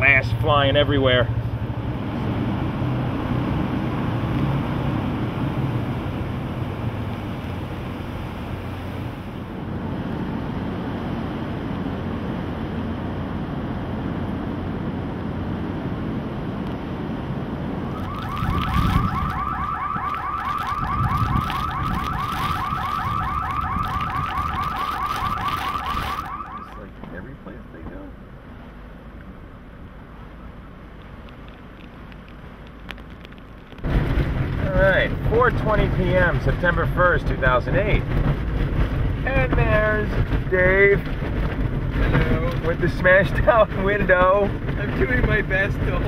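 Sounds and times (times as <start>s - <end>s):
storm wind: 14.7s - 26.9s, 31.8s - 46.0s
car alarm chirping: 17.9s - 26.8s.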